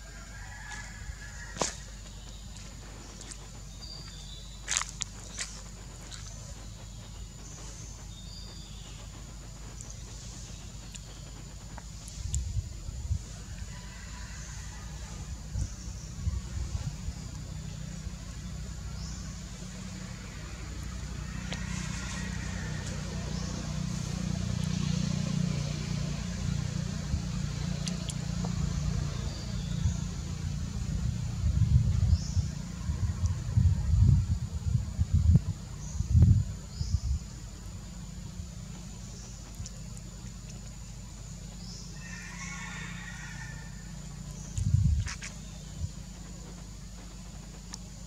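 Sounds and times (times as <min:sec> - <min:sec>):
engine rumbling: 0:00.0 - 0:48.0.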